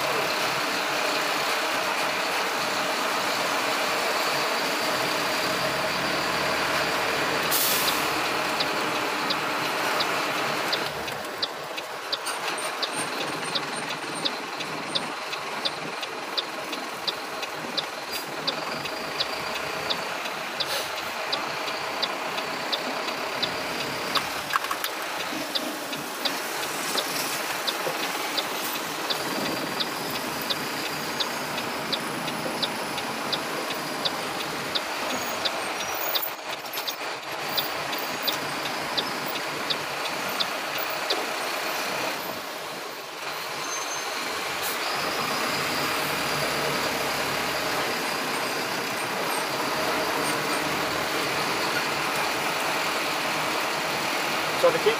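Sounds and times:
vehicle engine and road noise: 0:00.0 - 0:54.9
regular ticking: 0:03.2 - 0:43.3.

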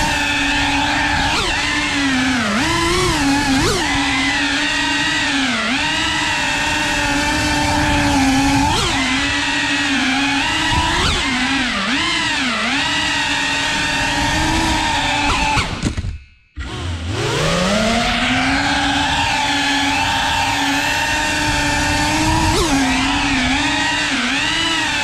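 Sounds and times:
drone motors buzzing high whine: 0:00.0 - 0:25.0.

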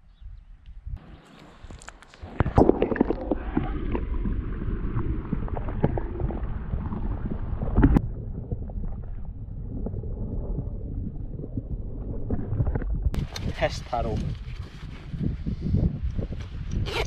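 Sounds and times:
underwater sloshing and gurgling: 0:01.9 - 0:13.3
low rumble: 0:02.2 - 0:16.8.

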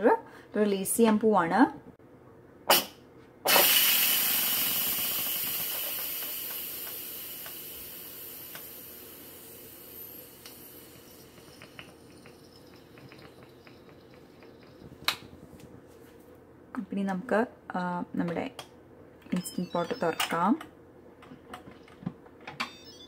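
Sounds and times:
steam valve hissing: 0:03.5 - 0:14.6.

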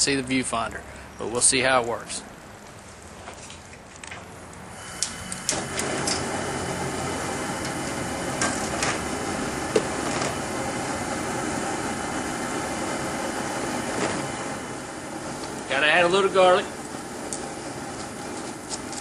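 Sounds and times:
burner clicks: 0:01.8 - 0:19.0
oil popping: 0:02.6 - 0:16.0.

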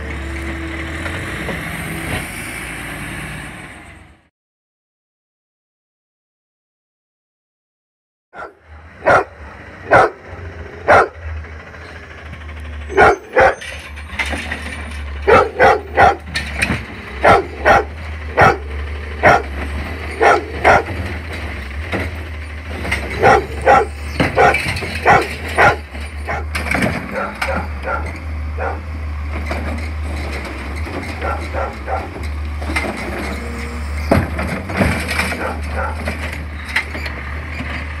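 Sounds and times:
garbage truck engine humming: 0:00.0 - 0:04.2, 0:08.4 - 0:38.0
dog barking: 0:08.4 - 0:11.2, 0:12.9 - 0:13.7, 0:15.2 - 0:16.3, 0:17.2 - 0:21.0, 0:23.2 - 0:28.9, 0:31.2 - 0:32.2, 0:35.3 - 0:36.1.

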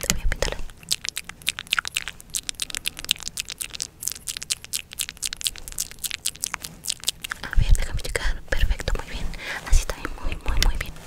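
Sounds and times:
crisp clicks and scratchy ticks: 0:00.0 - 0:08.1.

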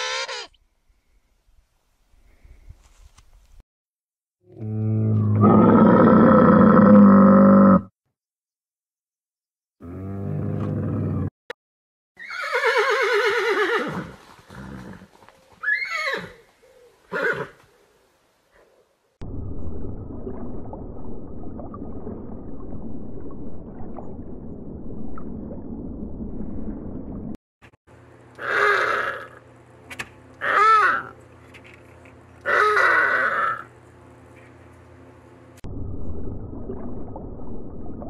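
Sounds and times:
horse whinnying: 0:00.0 - 0:00.6, 0:12.2 - 0:16.4, 0:17.1 - 0:17.6, 0:28.4 - 0:29.4
low underwater rushing noise: 0:19.2 - 0:27.4, 0:35.2 - 0:38.0.

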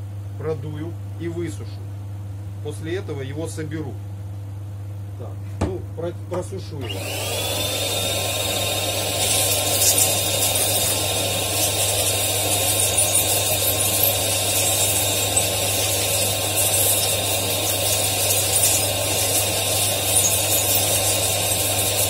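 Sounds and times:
air compressor motor running: 0:06.8 - 0:22.0
compressed air hissing from blow gun: 0:08.8 - 0:22.0.

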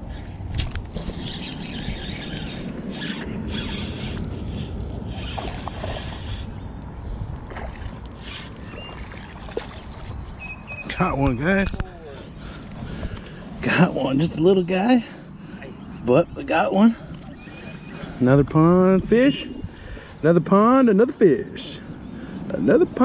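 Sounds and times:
fishing reel whirring: 0:00.0 - 0:10.6
wind rumble on microphone: 0:00.0 - 0:14.4.

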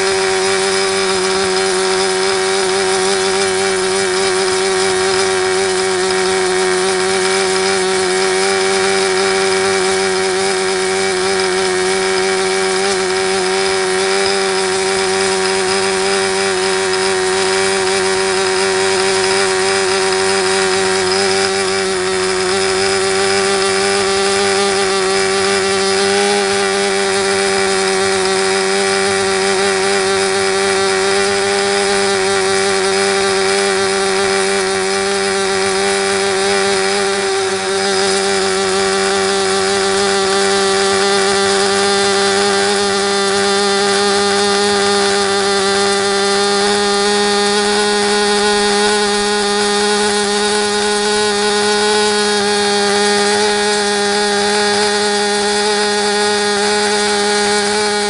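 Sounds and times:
model airplane engine running: 0:00.0 - 0:58.0.

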